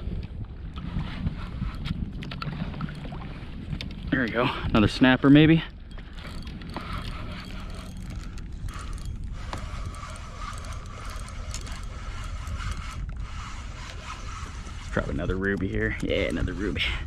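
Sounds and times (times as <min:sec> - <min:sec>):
fishing reel gears whirring: 0:05.0 - 0:17.0.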